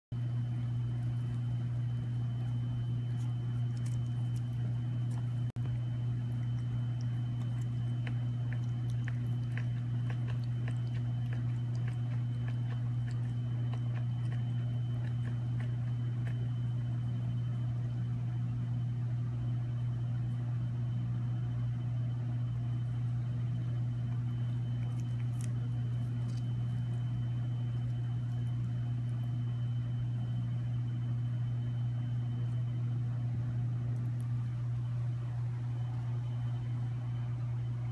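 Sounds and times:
low hum: 0.1 - 37.9
kitten chewing vegetables: 0.2 - 17.3, 22.9 - 30.8, 32.0 - 37.9.

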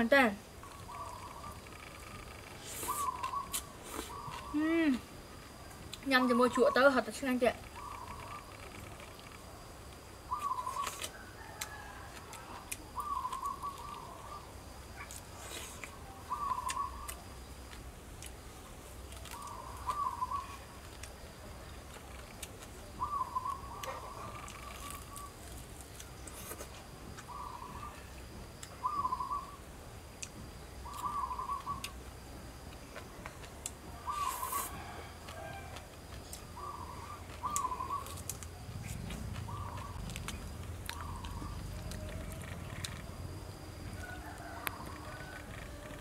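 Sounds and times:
bird calling: 0.6 - 5.0, 7.6 - 9.2, 10.2 - 11.8, 12.4 - 15.1, 16.1 - 17.3, 19.3 - 20.7, 22.9 - 25.5, 27.2 - 29.6, 30.8 - 32.0, 34.0 - 35.6, 36.4 - 38.3, 38.9 - 43.2.

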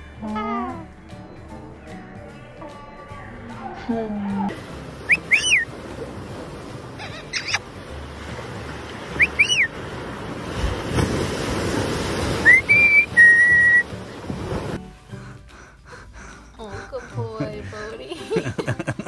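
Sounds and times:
ocean surf breaking: 4.5 - 14.8
parrot chirping and whistling: 5.1 - 5.7, 7.3 - 7.6, 9.2 - 9.7, 12.4 - 13.8.

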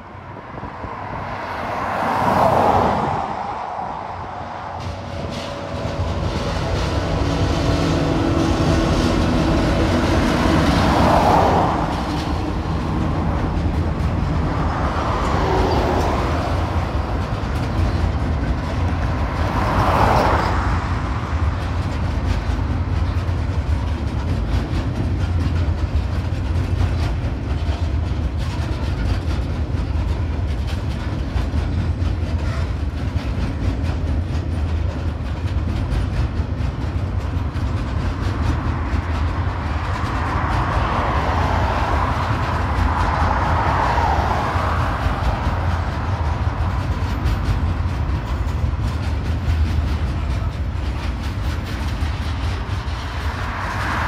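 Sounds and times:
cars whooshing past: 0.0 - 21.8, 38.4 - 48.4, 52.8 - 54.0
locomotive engine: 0.0 - 54.0
train wagons rumbling over bridge: 0.0 - 54.0.

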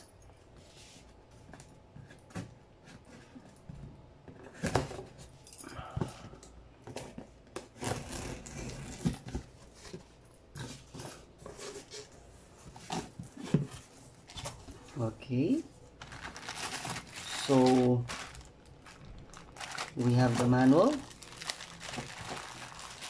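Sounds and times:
cardboard scraping and rustling: 6.9 - 14.8, 16.0 - 23.0.

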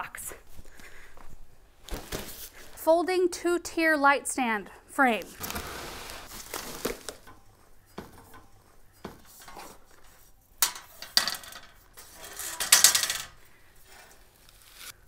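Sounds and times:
metal stand clinking and clanking: 7.3 - 13.4.

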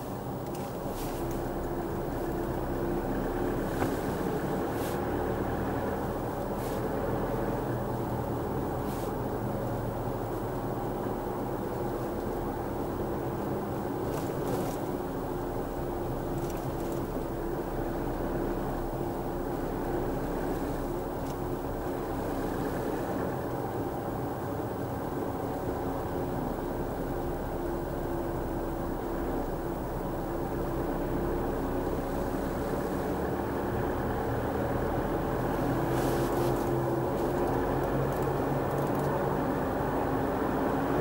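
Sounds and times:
tyre and road rumble: 0.0 - 9.4, 11.8 - 23.6, 31.5 - 40.2
car engine hum: 0.0 - 41.0.

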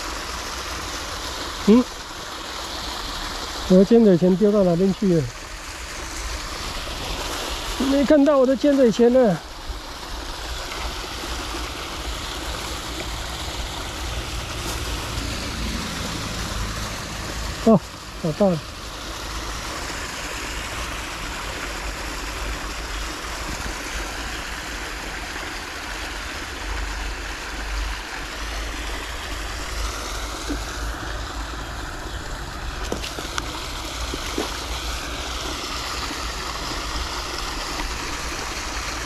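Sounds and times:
water pouring into river: 0.0 - 39.0.

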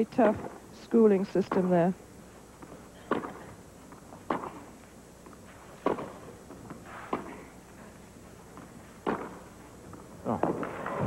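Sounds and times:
tennis ball hit by racquets: 4.3 - 4.6, 5.8 - 6.2, 9.0 - 9.4.

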